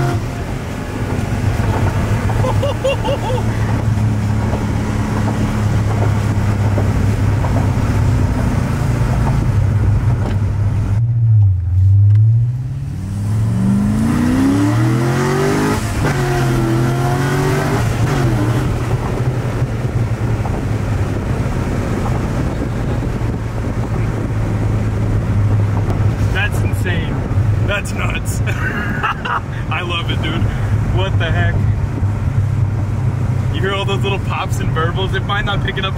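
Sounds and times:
car engine accelerating in cabin: 0.0 - 27.7.

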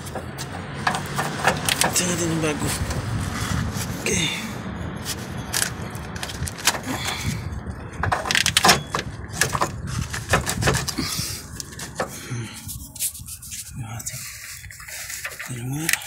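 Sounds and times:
clicks and knocks of metal parts: 0.0 - 2.1, 8.0 - 11.0
low rumble: 2.4 - 8.3.

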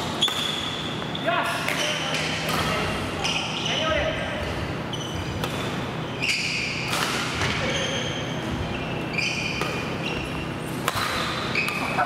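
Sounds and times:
sneakers squeaking on floor: 0.0 - 12.0
rackets striking shuttlecock: 5.3 - 5.9, 6.7 - 7.7, 9.5 - 10.1, 10.7 - 12.0.

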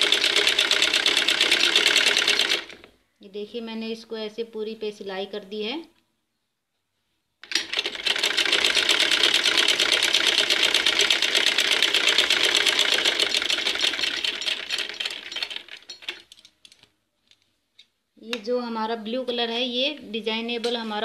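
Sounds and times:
sewing machine rattling: 0.0 - 2.9, 7.4 - 16.8.

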